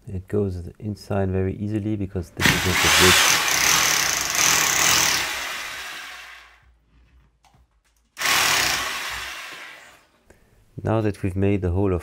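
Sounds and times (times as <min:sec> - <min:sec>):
hammer drill drilling into wall: 0:02.4 - 0:06.6, 0:08.2 - 0:10.1.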